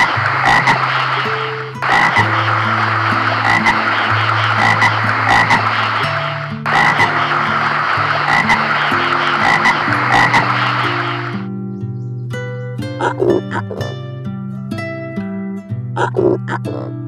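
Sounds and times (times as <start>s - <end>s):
toads croaking chorus: 0.0s - 11.5s.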